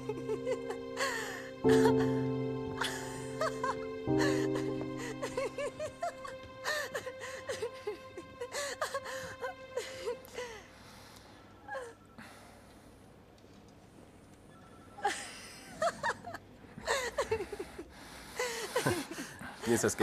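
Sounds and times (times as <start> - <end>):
woman laughing: 0.0 - 8.1
held music chord: 0.0 - 10.6.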